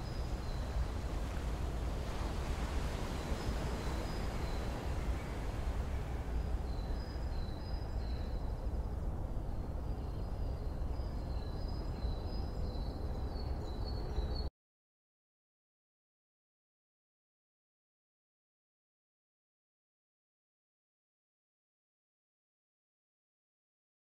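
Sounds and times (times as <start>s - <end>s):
ocean surf: 0.0s - 6.7s.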